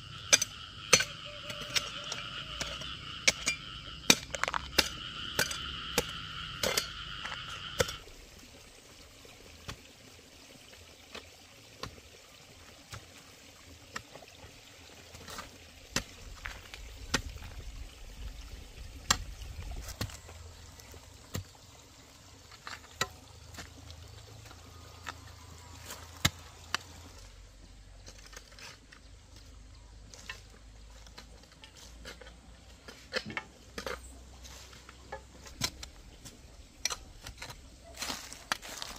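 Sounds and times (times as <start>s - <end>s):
hoe chopping stony soil: 0.1s - 8.1s, 15.1s - 17.7s, 19.0s - 21.7s, 22.4s - 27.3s
high two-tone animal call: 0.3s - 8.0s.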